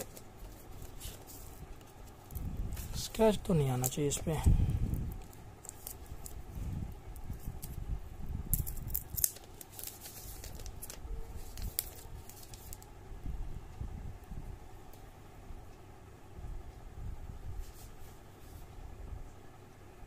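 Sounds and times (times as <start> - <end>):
plastic rustling: 0.0 - 7.8, 8.5 - 12.9.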